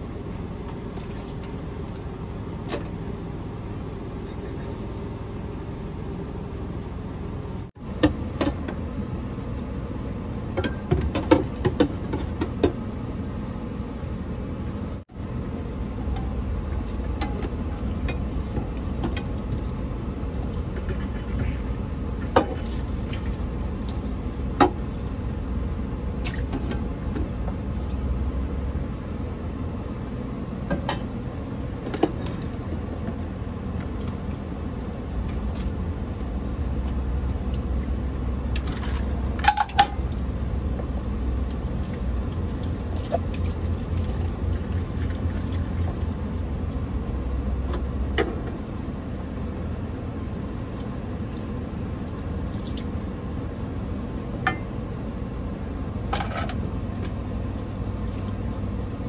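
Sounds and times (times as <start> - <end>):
dishes and utensils clinking: 20.7 - 22.6.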